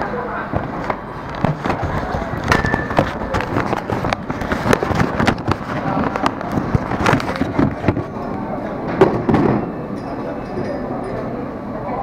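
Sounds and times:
handling noise on camera: 0.5s - 8.2s.

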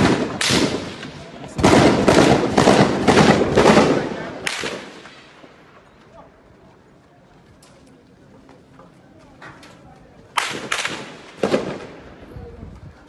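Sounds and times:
gunshots echoing: 0.0s - 5.8s, 10.3s - 12.2s.

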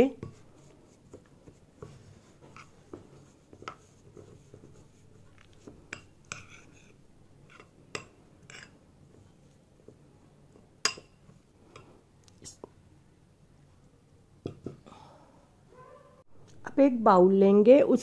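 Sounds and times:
spoon scraping in bowl: 2.2s - 7.7s, 8.4s - 8.8s.

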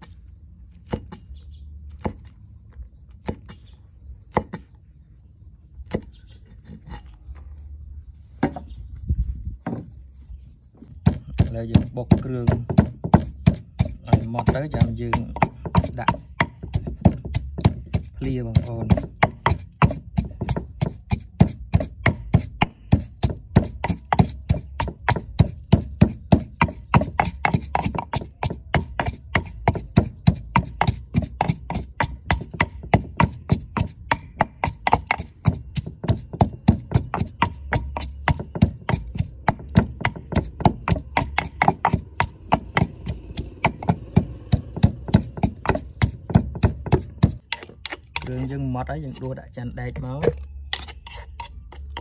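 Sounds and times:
wooden pestle pounding in mortar: 10.8s - 52.0s.

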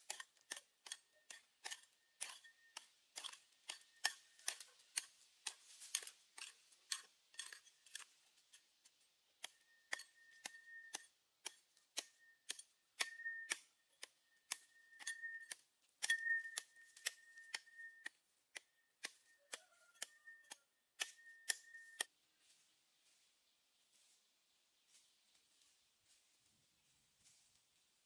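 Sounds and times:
metal hoe scraping sandy soil: 0.0s - 8.8s.

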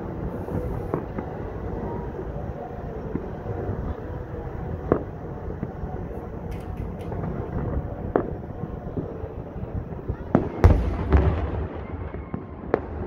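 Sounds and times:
distant firework bangs: 10.2s - 13.0s.

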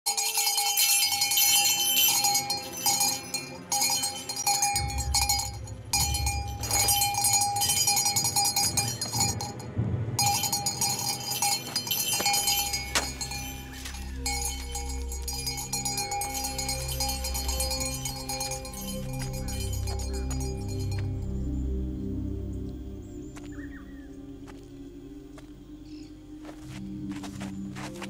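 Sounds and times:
metal hand bell ringing: 0.1s - 21.1s
low rumble: 4.7s - 25.8s.

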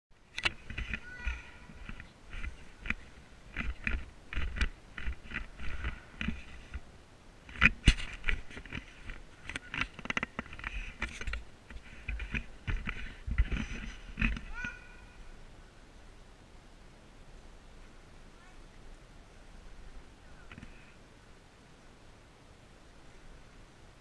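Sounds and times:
camera handling knocks and rubbing: 0.4s - 6.9s, 7.5s - 14.5s.

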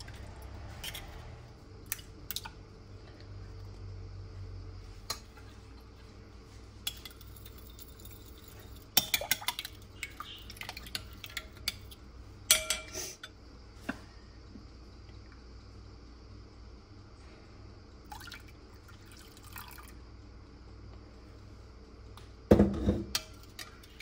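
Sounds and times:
spoon beating eggs in glass bowl: 6.8s - 12.9s.

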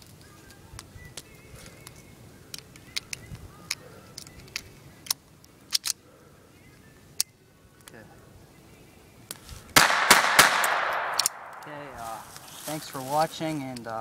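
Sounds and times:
pistol metallic clicks: 0.8s - 6.0s, 7.2s - 7.9s, 9.3s - 11.7s.

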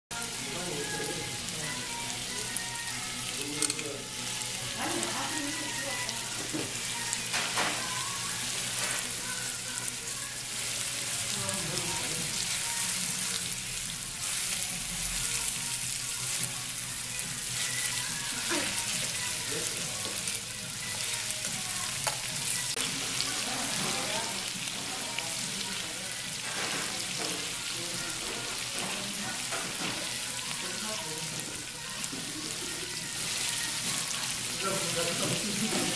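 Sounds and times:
meat sizzling in a pan: 0.1s - 35.9s
metal tongs clicking: 3.6s - 3.9s.

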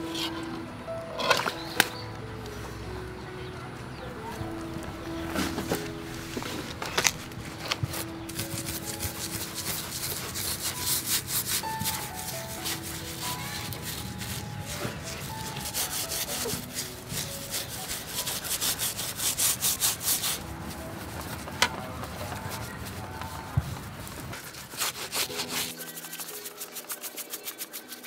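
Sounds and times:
steel wool scrubbing shark skin: 7.9s - 28.0s.

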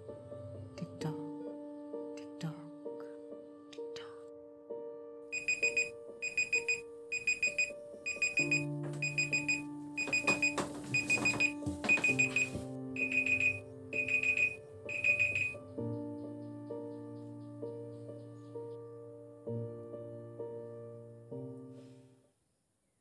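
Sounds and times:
soft background music: 0.0s - 22.2s
phone alarm beeping: 5.3s - 15.6s.

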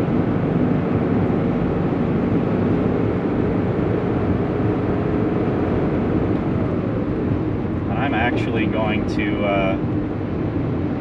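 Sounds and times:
car engine running: 0.0s - 11.0s
road noise: 0.0s - 11.0s.

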